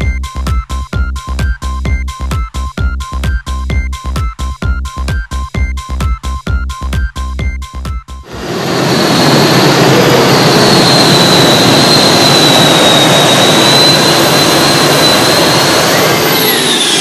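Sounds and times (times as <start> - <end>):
loud engine with high whine: 8.2 - 17.0.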